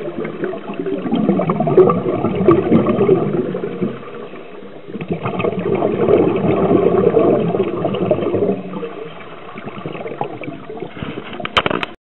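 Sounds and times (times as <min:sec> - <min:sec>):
air bubbling from a regulator underwater: 0:00.0 - 0:11.6.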